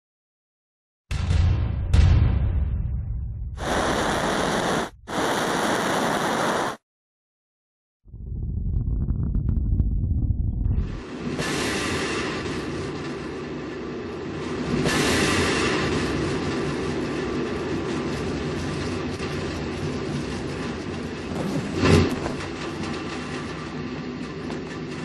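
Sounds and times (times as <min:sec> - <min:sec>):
steady rumbling noise: 0:03.5 - 0:06.8, 0:08.1 - 0:23.8.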